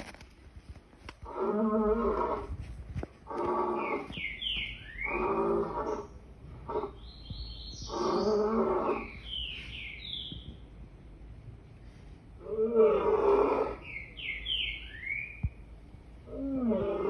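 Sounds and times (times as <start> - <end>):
birds chirping: 3.3 - 11.2, 12.9 - 17.0
lion roaring: 5.0 - 6.1, 7.9 - 9.2, 12.4 - 13.8, 16.3 - 17.0.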